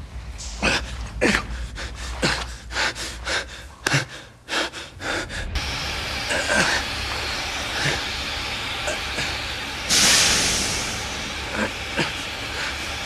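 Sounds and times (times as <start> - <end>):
man gasping breaths: 0.4 - 13.0
steam hissing from a valve: 5.4 - 13.0.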